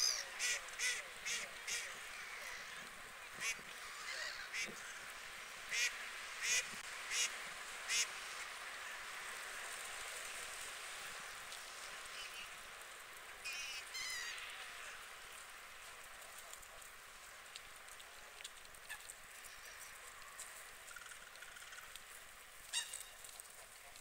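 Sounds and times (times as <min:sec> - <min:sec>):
water birds calling: 0:00.0 - 0:08.2, 0:13.4 - 0:15.4, 0:17.8 - 0:24.0
steady outdoor hiss: 0:00.0 - 0:24.0.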